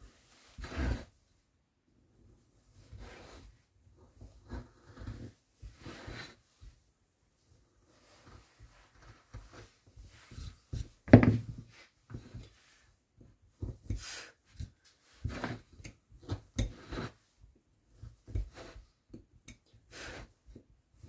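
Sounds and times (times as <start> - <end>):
carving tool scraping wood: 0.6 - 1.1, 4.4 - 6.4, 13.9 - 17.3, 18.2 - 18.9.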